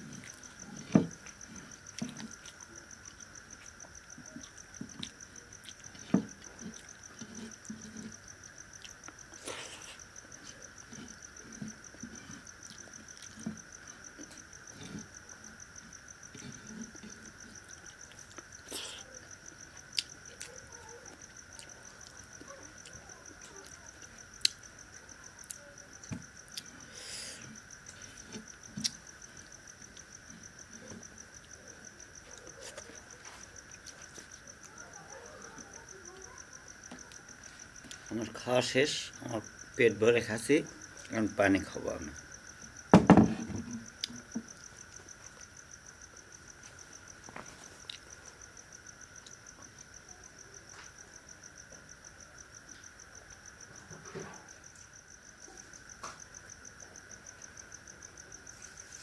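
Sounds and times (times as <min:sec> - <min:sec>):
soft chewing: 0:00.0 - 0:38.1, 0:46.6 - 0:50.0.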